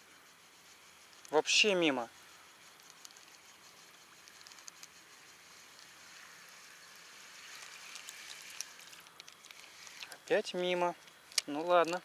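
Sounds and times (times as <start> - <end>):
lure ticking and splashing: 2.6 - 5.1, 7.3 - 12.0.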